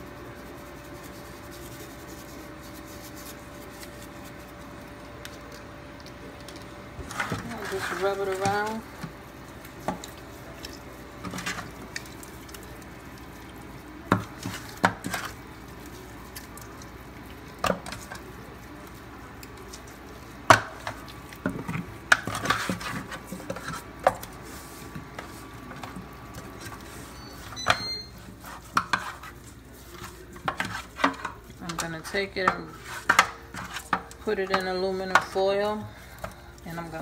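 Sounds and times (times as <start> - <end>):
hands rubbing meat: 0.0 - 5.7.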